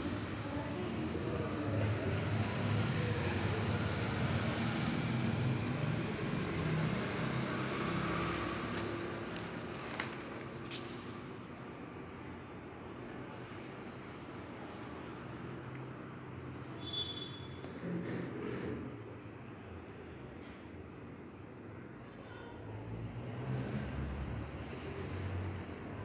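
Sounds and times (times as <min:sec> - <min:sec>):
vehicle passing rumble: 0:00.0 - 0:11.1, 0:22.8 - 0:26.0.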